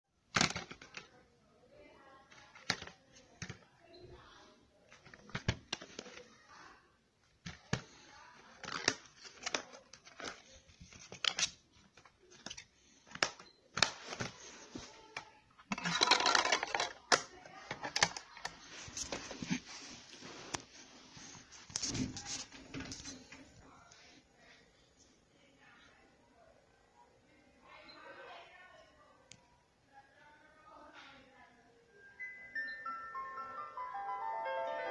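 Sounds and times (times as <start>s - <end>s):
plastic case clicks and snaps: 0.3s - 1.1s
rustling: 17.6s - 23.2s.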